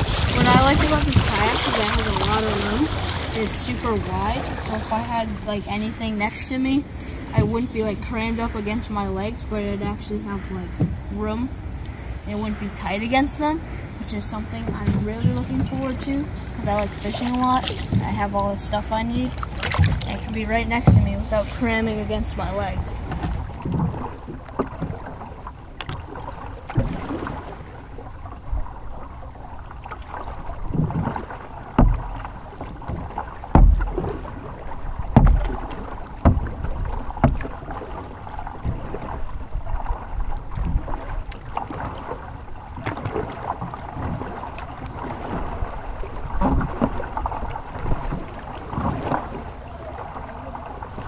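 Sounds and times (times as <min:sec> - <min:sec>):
dull thumps through boat: 0:00.0 - 0:51.0
paddle strokes splashing: 0:00.0 - 0:51.0
water slapping against hull: 0:00.0 - 0:51.0.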